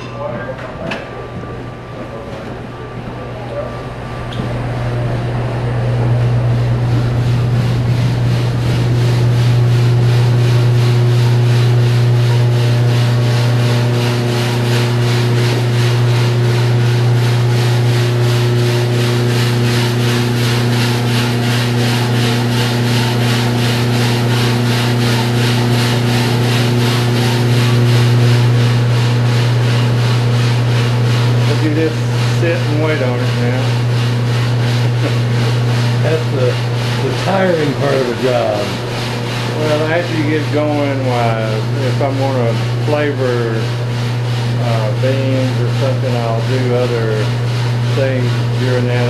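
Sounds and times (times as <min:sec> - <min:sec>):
coffee roaster motor hum: 0:00.0 - 0:49.0
roaster drum scraping swish: 0:05.8 - 0:49.0.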